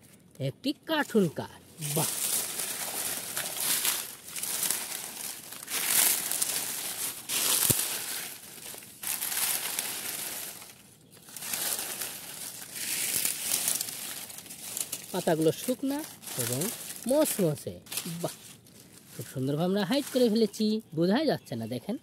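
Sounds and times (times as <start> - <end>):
dry leaves crunching and rustling: 1.0 - 21.1.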